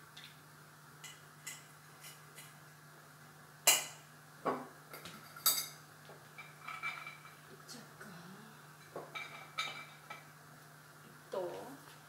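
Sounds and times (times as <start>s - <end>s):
faint steady hum: 0.0s - 12.0s
utensils and glass jars clattering: 6.4s - 7.4s.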